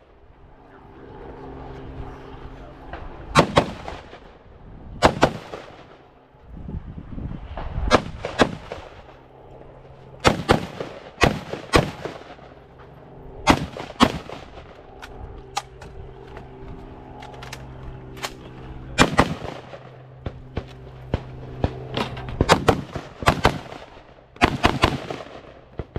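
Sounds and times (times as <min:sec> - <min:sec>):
rifle shots: 0:03.4 - 0:04.3, 0:05.0 - 0:06.0, 0:07.9 - 0:09.2, 0:10.2 - 0:12.6, 0:13.4 - 0:14.8, 0:19.0 - 0:25.9.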